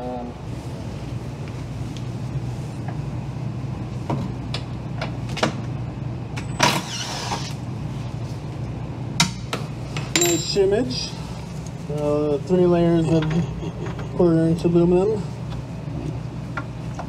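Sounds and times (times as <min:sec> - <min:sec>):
steady low hum: 0:00.0 - 0:06.7, 0:07.4 - 0:17.0
cordless drill bursts: 0:06.7 - 0:07.5.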